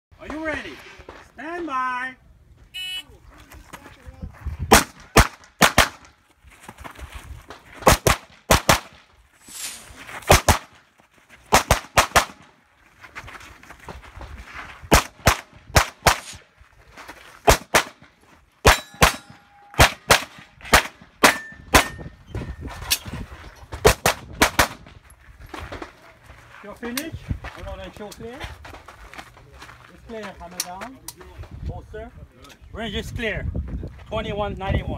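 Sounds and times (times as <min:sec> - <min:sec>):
pistol shots: 0:04.7 - 0:06.1, 0:07.8 - 0:09.0, 0:10.3 - 0:10.7, 0:11.5 - 0:12.4, 0:14.9 - 0:16.4, 0:18.6 - 0:22.0.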